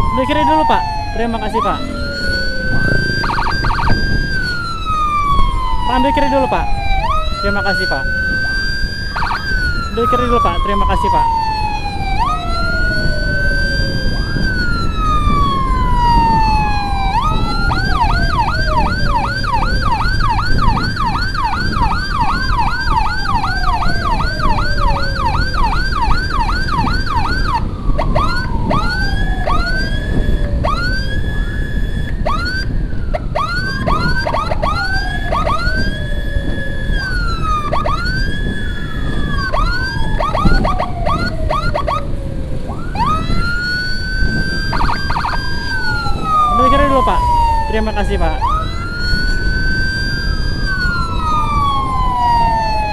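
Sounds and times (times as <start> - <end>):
electronic siren wailing and yelping: 0.0 - 52.9
wind and traffic rumble: 0.0 - 52.9.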